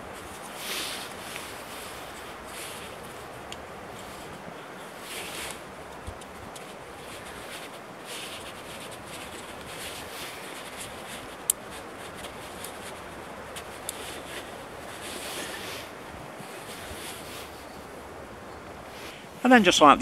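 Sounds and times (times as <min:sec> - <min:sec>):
wooden sticks rubbing and clicking: 0:05.0 - 0:17.8.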